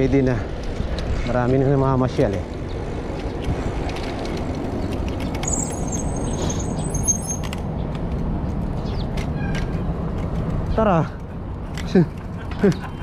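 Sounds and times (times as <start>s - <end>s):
wind on camera: 0.0s - 10.8s
bicycle tyres on brick pavers: 0.0s - 13.0s
thin high squeal: 5.4s - 7.5s.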